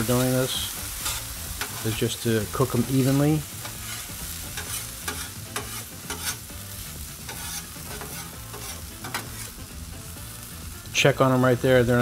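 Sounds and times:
potatoes sizzling on a griddle: 0.0 - 12.0
metal spatulas scraping: 1.0 - 9.7.

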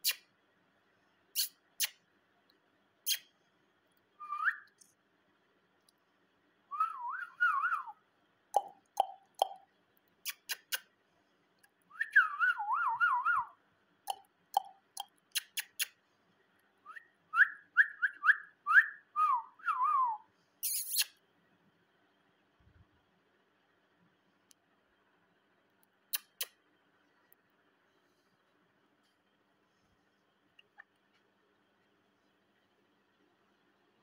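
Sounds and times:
sharp bird clicks: 0.0 - 0.3, 1.4 - 2.0, 3.0 - 3.3, 10.2 - 10.9, 14.1 - 16.0, 20.6 - 21.2, 26.1 - 26.6.

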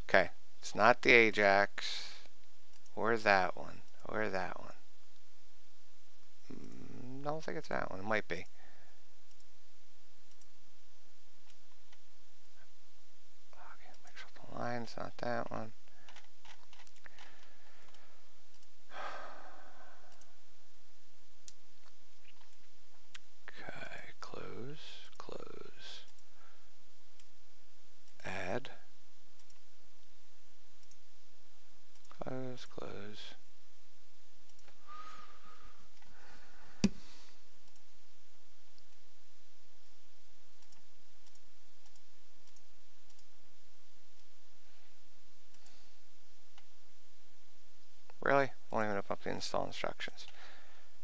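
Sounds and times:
low hiss: 0.0 - 51.0
faint mouse clicks: 10.3 - 10.6, 40.6 - 43.3
person sighing: 18.9 - 20.2.

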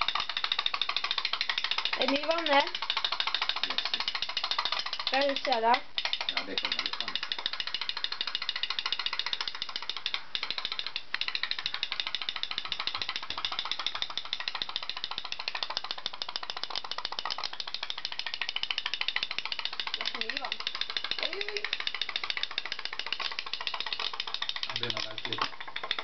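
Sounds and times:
toy steam boat popping: 0.0 - 26.0.

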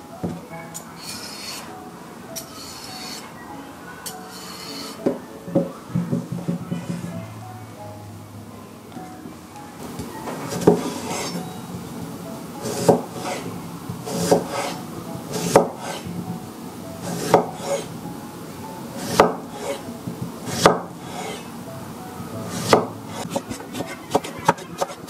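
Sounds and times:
knife cutting on wooden board: 14.1 - 16.0.

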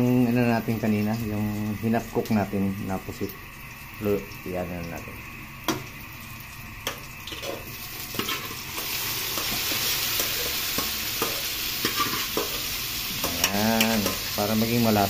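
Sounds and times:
frying sizzle: 0.0 - 15.0
metal pot clanks: 9.3 - 12.6.

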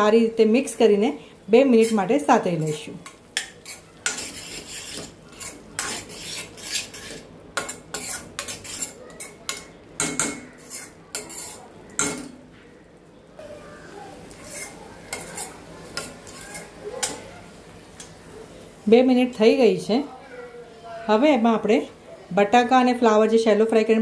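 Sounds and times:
metal spoon scraping metal pan: 1.8 - 12.4, 14.3 - 17.3.

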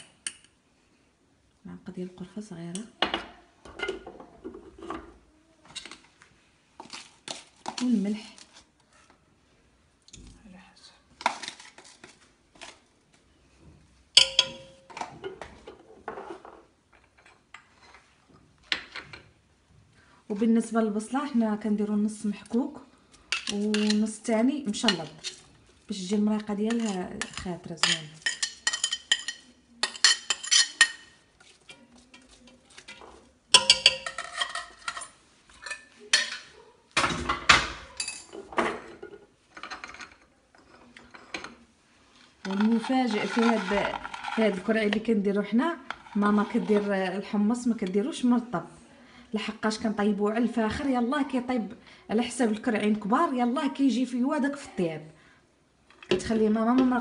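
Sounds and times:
loud metal pot clang: 14.2 - 15.0
spoon clinking on glass and pot: 14.2 - 15.0, 26.7 - 31.1, 32.1 - 36.5
metal kitchenware clattering: 14.2 - 18.1, 23.3 - 25.4, 26.4 - 41.7, 42.4 - 45.1.

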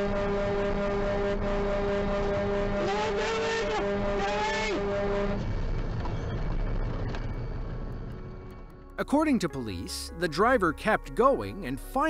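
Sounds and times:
higher wavering horn tone: 0.0 - 5.5
truck air horn blast: 0.0 - 5.5.

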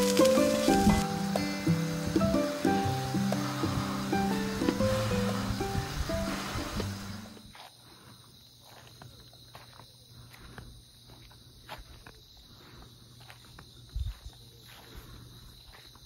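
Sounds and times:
background music: 0.0 - 7.5
crickets chirping: 0.0 - 16.0.

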